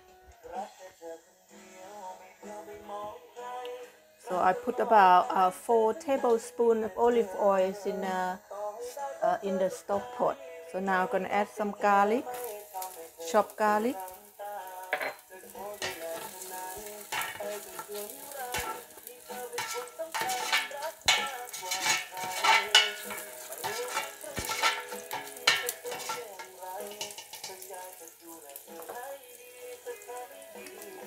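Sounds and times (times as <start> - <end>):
garlic sizzling in oil: 12.1 - 31.0
spatula scraping metal pot: 15.0 - 27.6.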